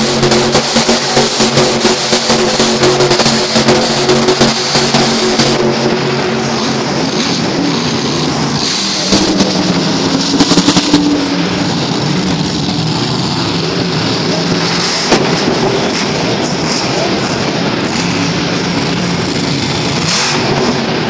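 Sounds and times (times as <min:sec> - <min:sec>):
truck engine revving: 0:00.0 - 0:21.0
sharp cracks: 0:13.6 - 0:21.0.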